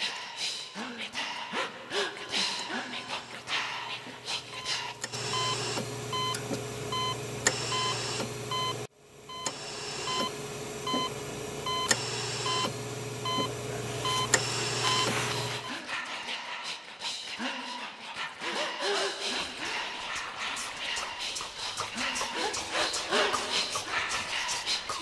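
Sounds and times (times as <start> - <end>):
short electronic beeps: 13.3 - 15.7.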